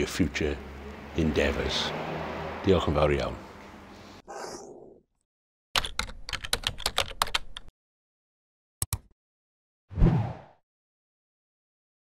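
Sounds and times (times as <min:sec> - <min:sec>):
computer keyboard typing: 0:05.8 - 0:07.7.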